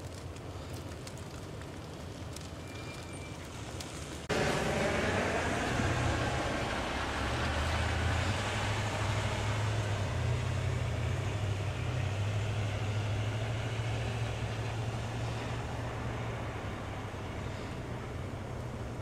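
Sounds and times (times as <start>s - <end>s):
car engines driving slowly: 0.0s - 19.0s.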